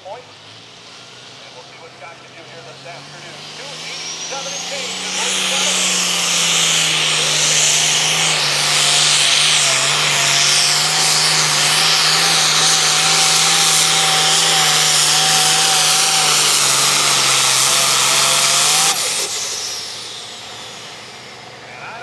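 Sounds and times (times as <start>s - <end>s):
high whine winding down: 0.0s - 22.0s
tractor engine running flat out: 0.0s - 22.0s.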